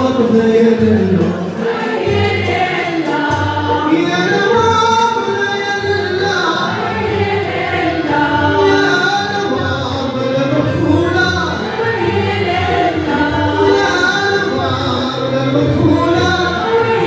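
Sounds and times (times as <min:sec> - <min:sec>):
men singing together: 0:00.0 - 0:17.0
violins and ouds: 0:00.0 - 0:17.0.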